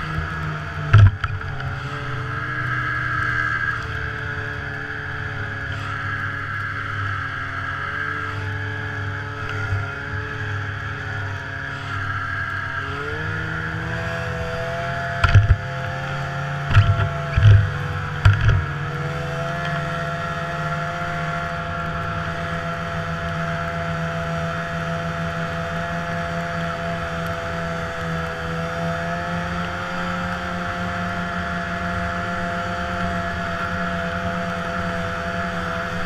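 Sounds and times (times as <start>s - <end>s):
snowmobile engine running: 0.0s - 36.0s.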